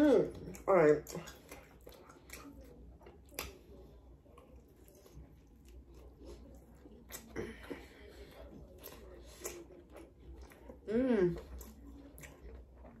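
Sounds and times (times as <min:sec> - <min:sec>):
close chewing mouth sounds: 0:00.0 - 0:13.0.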